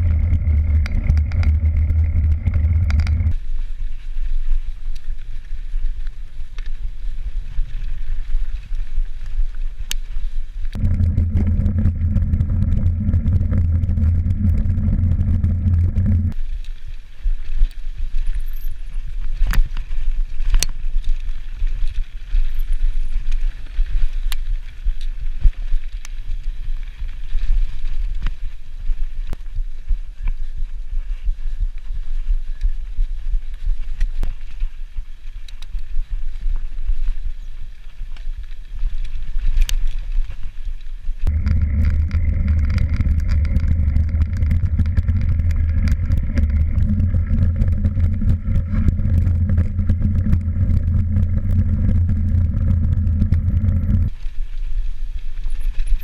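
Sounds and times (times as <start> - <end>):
bike knocking and rattling: 0.0 - 3.6, 10.7 - 26.4, 41.2 - 54.4
wind buffeting microphone: 0.0 - 3.6, 10.6 - 16.4, 41.1 - 54.2
low hum: 0.0 - 4.0, 10.6 - 17.2, 41.2 - 54.4
bike tyre noise: 0.0 - 31.4, 38.2 - 56.0.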